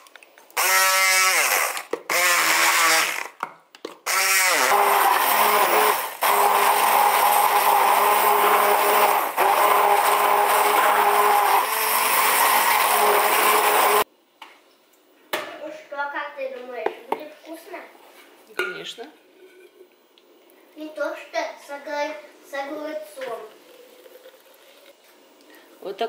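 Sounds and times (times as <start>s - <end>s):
immersion blender running: 0.6s - 3.4s, 4.1s - 14.1s.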